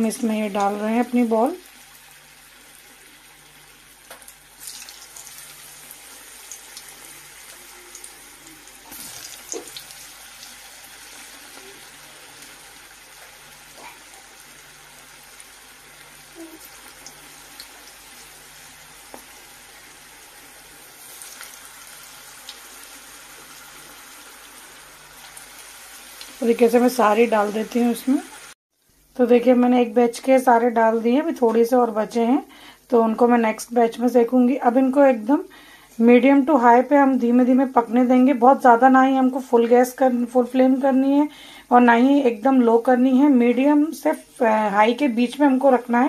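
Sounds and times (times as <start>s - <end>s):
food deep-frying in oil: 0.0s - 28.6s.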